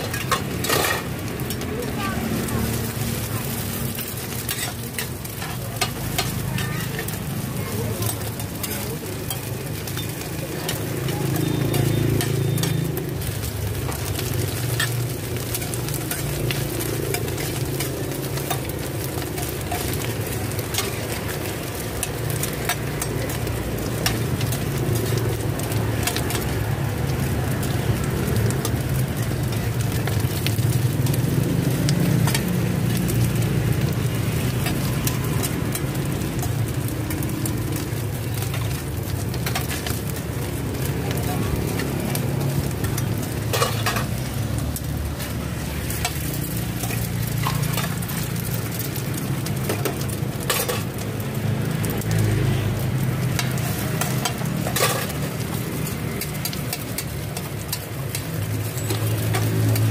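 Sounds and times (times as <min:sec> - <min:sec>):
metal spatulas scraping a pan: 0:00.0 - 0:01.7, 0:02.3 - 0:07.2, 0:42.6 - 0:44.4, 0:45.2 - 0:51.0, 0:53.4 - 0:59.9
food sizzling in oil: 0:00.0 - 0:59.9.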